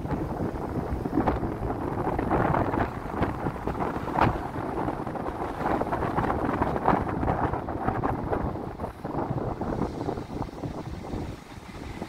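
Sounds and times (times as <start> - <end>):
car road noise: 0.0 - 12.0
wind buffeting microphone: 0.0 - 12.0.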